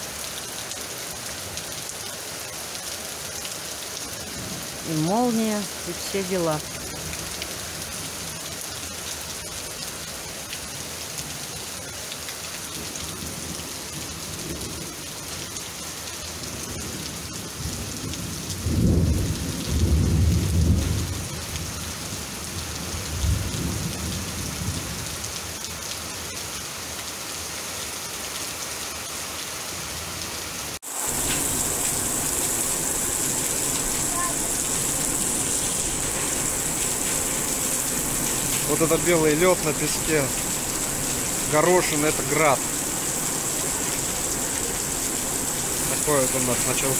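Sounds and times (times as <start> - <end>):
heavy rain: 0.0 - 46.9
hail pattering: 30.9 - 46.9
thunder rumbling: 31.0 - 46.9.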